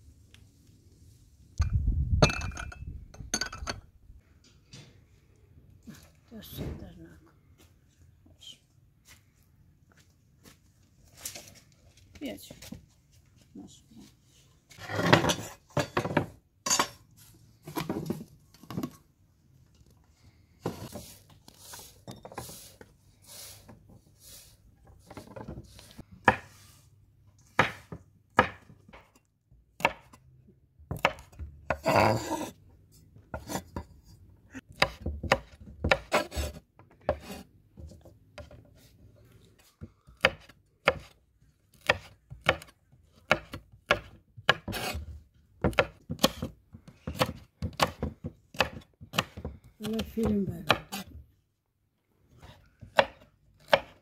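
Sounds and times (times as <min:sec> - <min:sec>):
knife chopping on wooden board: 0:27.5 - 0:29.1, 0:29.8 - 0:30.2, 0:30.9 - 0:32.5, 0:34.7 - 0:37.4, 0:40.2 - 0:51.1, 0:52.4 - 0:54.0.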